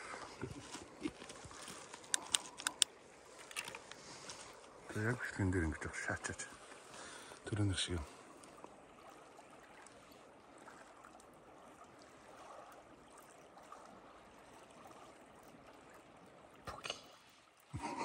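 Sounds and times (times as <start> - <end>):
faint steady hiss: 0.0 - 8.8.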